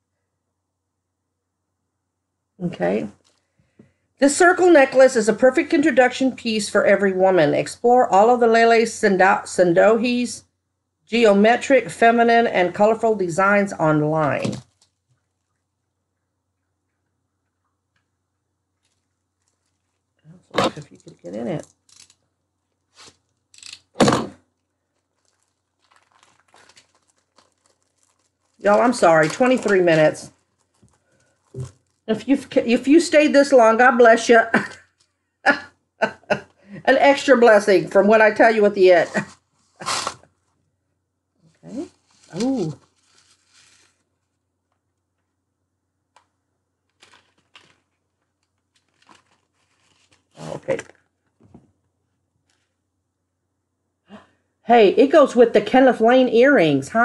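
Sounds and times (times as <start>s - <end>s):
faint crinkling: 2.8s - 4.6s, 14.2s - 32.7s, 34.6s - 35.4s, 41.4s - 45.4s, 46.1s - 53.0s
packaging rustling and ripping: 14.6s - 15.1s, 18.8s - 22.2s, 22.8s - 32.1s, 41.8s - 44.3s, 46.9s - 51.2s.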